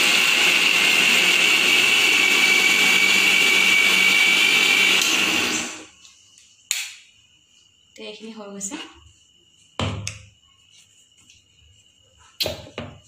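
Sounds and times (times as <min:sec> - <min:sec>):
mixer grinder whining: 0:00.0 - 0:05.9.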